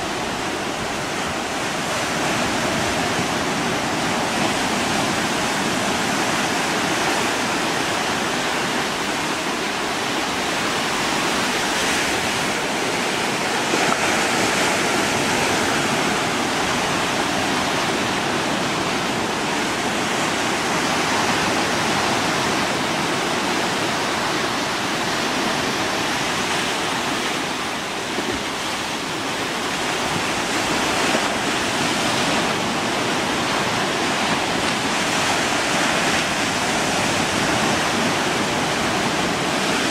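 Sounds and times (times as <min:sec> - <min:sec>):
small waves washing on shore: 0:00.0 - 0:39.9.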